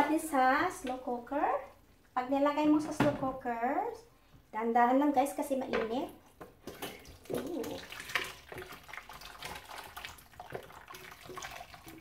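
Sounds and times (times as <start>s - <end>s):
stew sloshing and plopping: 6.2s - 12.0s.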